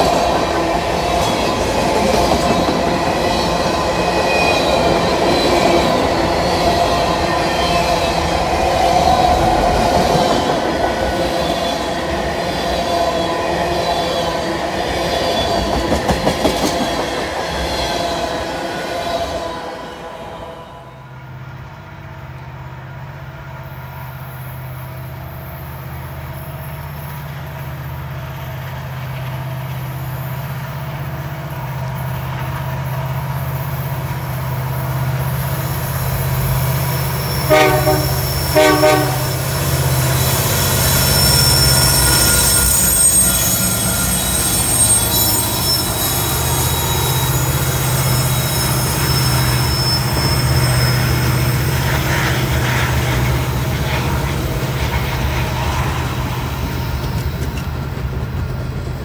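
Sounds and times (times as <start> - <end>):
diesel locomotive engine drone: 0.0 - 59.0
wheels squealing on rails: 0.0 - 59.0
train horn blasts: 37.3 - 39.6.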